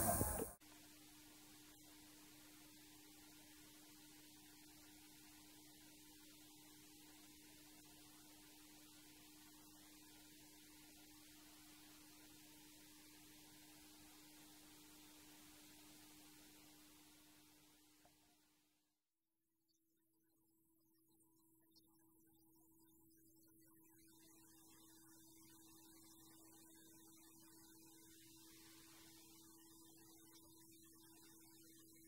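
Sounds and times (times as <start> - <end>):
light hiss: 0.0 - 0.6
faint low hum: 0.0 - 18.6.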